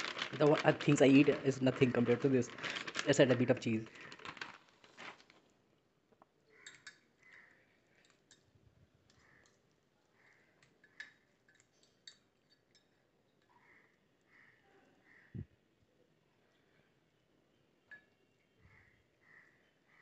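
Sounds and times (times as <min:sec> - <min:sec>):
cutlery stirring in a ceramic mug: 0:06.6 - 0:08.5, 0:10.6 - 0:13.5.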